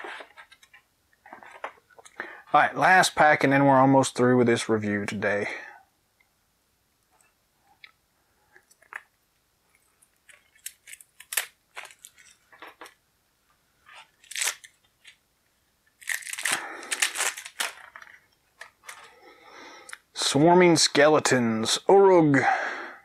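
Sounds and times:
plastic shrink wrap crinkling: 0:09.7 - 0:13.0, 0:13.9 - 0:15.2, 0:15.9 - 0:19.1.

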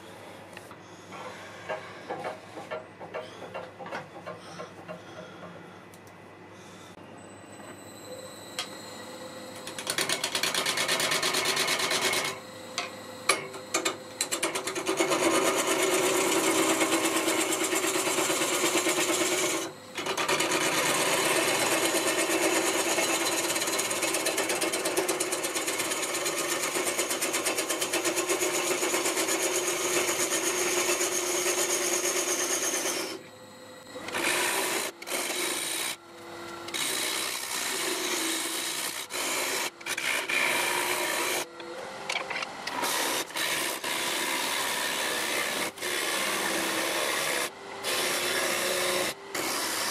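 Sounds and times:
lathe motor hum: 0:08.5 - 0:49.9
lathe tool scraping wood: 0:13.8 - 0:33.2, 0:34.0 - 0:36.0, 0:36.7 - 0:41.5, 0:42.7 - 0:49.9.

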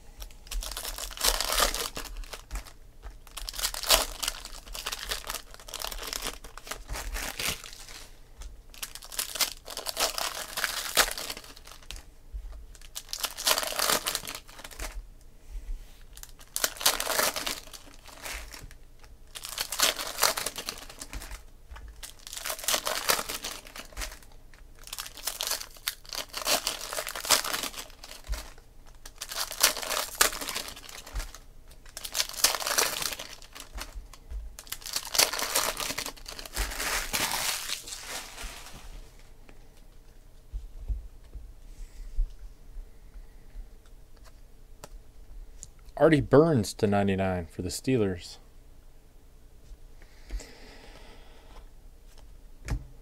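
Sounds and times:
foil wrappers tearing and crinkling: 0:00.2 - 0:08.1, 0:08.7 - 0:12.1, 0:12.7 - 0:15.0, 0:16.0 - 0:39.2.

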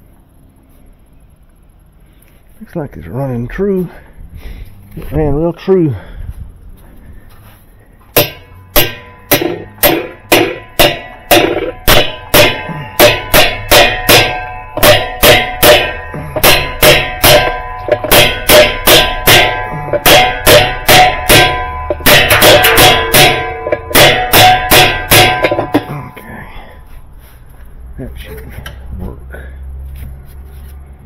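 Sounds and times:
hammer blows on metal ringing: 0:08.1 - 0:26.3.

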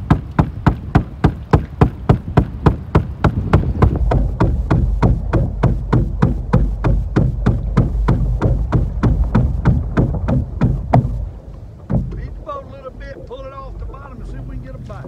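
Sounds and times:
waves slapping boat hull: 0:00.0 - 0:15.0
wind rumble on microphone: 0:00.0 - 0:15.0.

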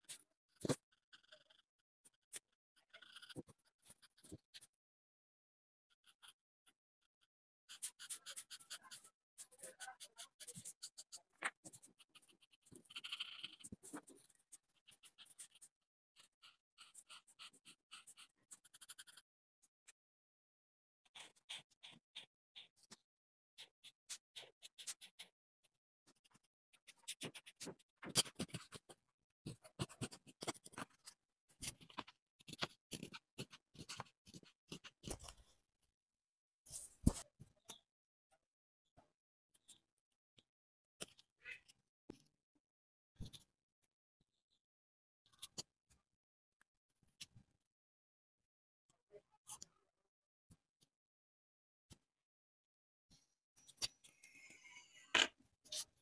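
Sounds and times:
marker scratching on paper: 0:00.0 - 0:04.8, 0:05.9 - 0:19.3, 0:21.0 - 0:35.6, 0:36.6 - 0:37.8.

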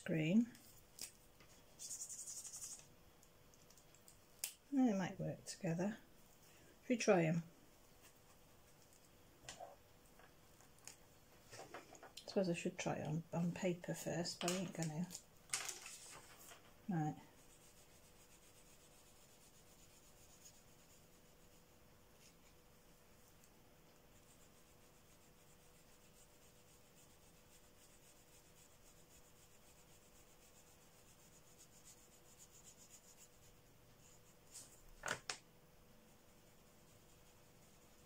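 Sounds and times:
marker scratching on paper: 0:01.7 - 0:02.8, 0:24.1 - 0:34.8.

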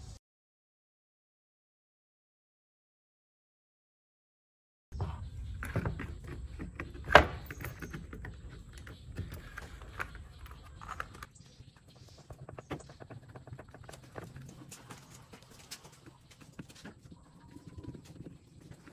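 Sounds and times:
plastic parts clicking and knocking: 0:05.6 - 0:11.3.

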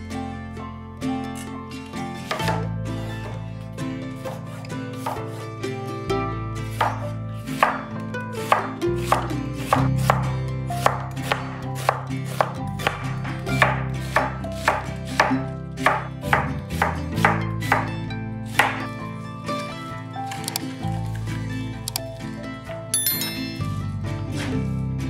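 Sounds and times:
background music: 0:00.0 - 0:25.0
knife chopping on cutting board: 0:04.2 - 0:05.4, 0:06.7 - 0:07.8, 0:08.4 - 0:17.9, 0:18.5 - 0:18.8.

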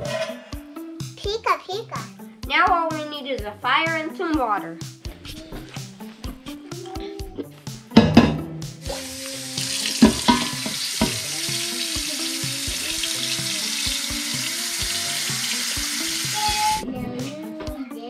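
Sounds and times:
water running into a metal pot: 0:08.8 - 0:16.8.

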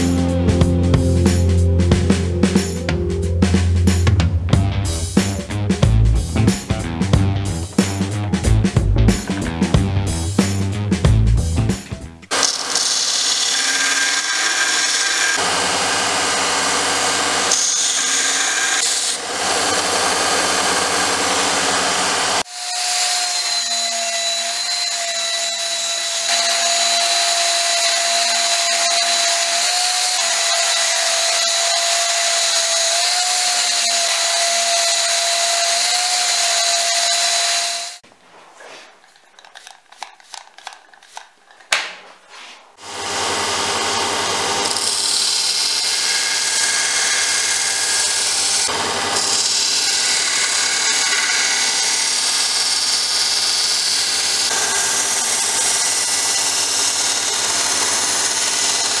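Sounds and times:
bandsaw cutting: 0:11.7 - 0:38.0, 0:42.8 - 0:59.0
power file sander whining: 0:12.3 - 0:38.0, 0:42.8 - 0:59.0
uneven rubbing: 0:38.0 - 0:42.8.

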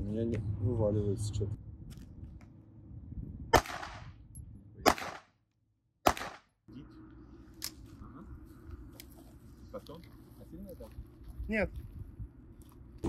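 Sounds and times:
gunshots with echo: 0:04.9 - 0:05.3, 0:06.1 - 0:06.4.

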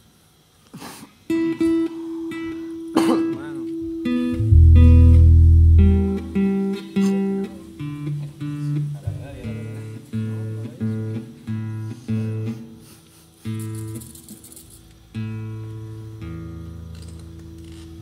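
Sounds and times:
guitar plucked notes: 0:01.3 - 0:12.6
deep low guitar note: 0:03.2 - 0:09.0.

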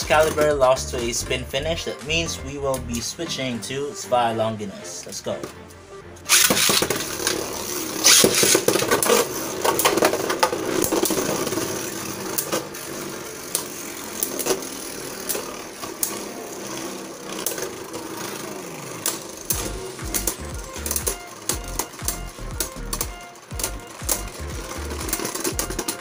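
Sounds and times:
spinning tops whirring and scraping: 0:00.0 - 0:26.0
spinning tops clicking together: 0:05.7 - 0:26.0.

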